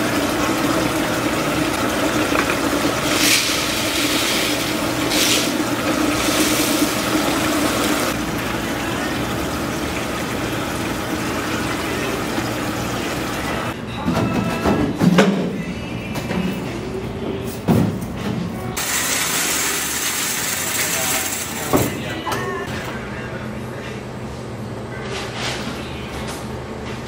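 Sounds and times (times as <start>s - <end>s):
water rushing into machine: 0.0s - 13.8s
washing machines humming: 0.0s - 27.0s.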